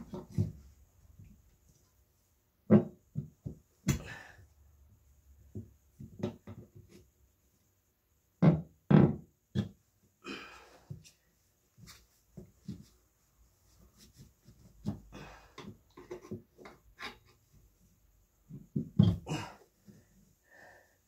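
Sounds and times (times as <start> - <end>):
dull thumps and knocks: 2.7 - 4.1, 5.5 - 7.0, 8.4 - 9.8, 18.5 - 19.3.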